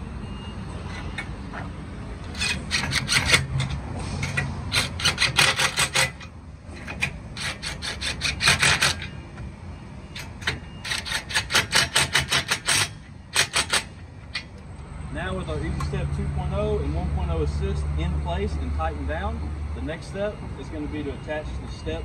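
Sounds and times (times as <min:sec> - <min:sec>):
impact driver rattling: 0:10.4 - 0:14.4.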